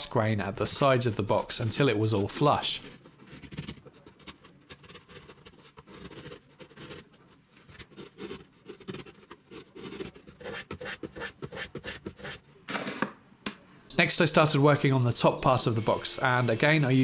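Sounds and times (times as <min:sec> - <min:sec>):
chisel scraping wood: 0:02.8 - 0:12.4.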